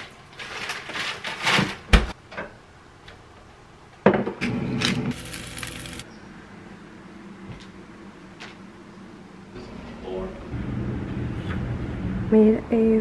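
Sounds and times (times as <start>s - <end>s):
cheese hissing into skillet: 5.2s - 6.0s.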